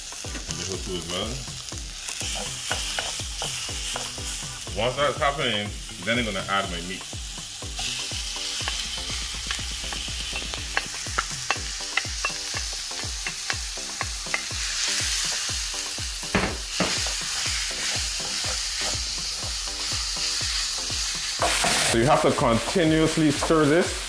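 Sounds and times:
meat sizzling in a frying pan: 0:00.0 - 0:24.0
wooden spoon tapping and scraping pan: 0:02.3 - 0:04.2, 0:09.4 - 0:14.5.

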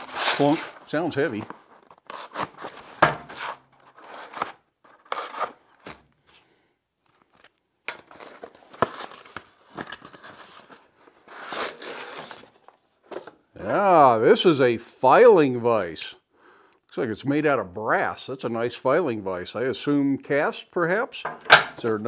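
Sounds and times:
box and paper packing rustling: 0:00.0 - 0:06.1, 0:07.1 - 0:13.4.

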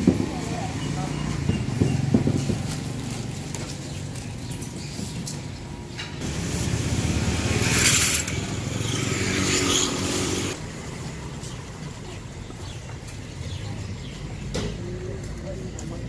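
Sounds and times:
street hubbub: 0:00.0 - 0:16.0
passing vehicle engine: 0:06.2 - 0:12.1.

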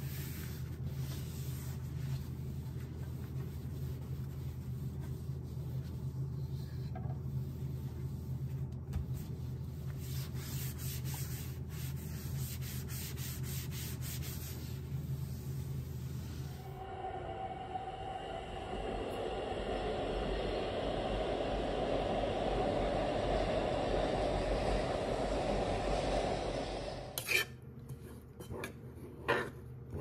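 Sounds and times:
cloth wiping glass: 0:00.0 - 0:16.8
low hum: 0:00.0 - 0:28.3.

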